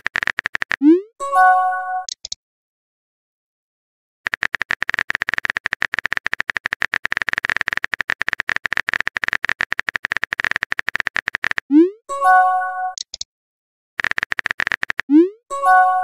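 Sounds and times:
keyboard typing clicks: 0.0s - 1.0s, 2.0s - 2.4s, 4.3s - 11.8s, 12.9s - 13.3s, 14.0s - 15.3s.

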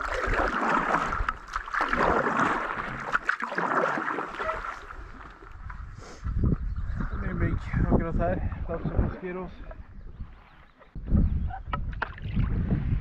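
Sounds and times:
paddle strokes splashing in water: 0.0s - 5.9s.

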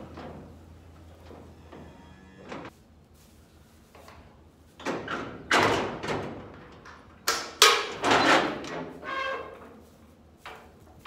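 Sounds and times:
metal clanks and thuds: 4.8s - 6.8s.

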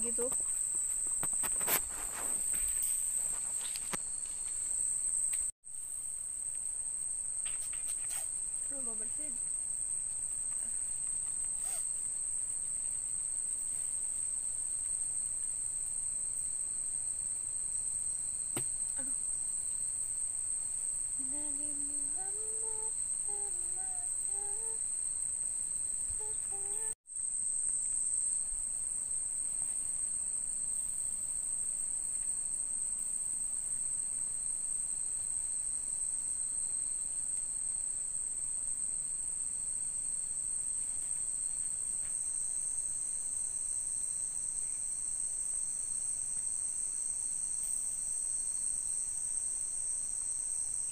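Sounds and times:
night insects shrilling: 0.0s - 37.1s.

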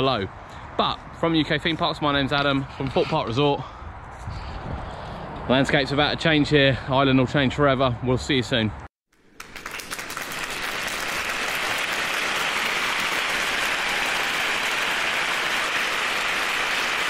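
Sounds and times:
crowd applauding: 9.2s - 17.0s.

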